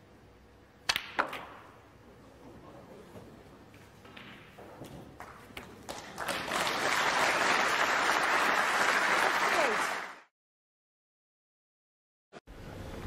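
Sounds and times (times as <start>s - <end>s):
audience applauding: 5.8s - 10.3s.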